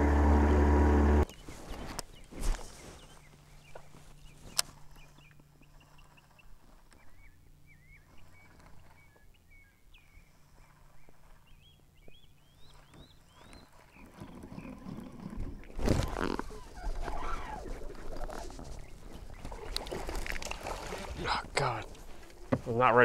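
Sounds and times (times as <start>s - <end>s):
small birds chirping: 1.2s - 23.0s.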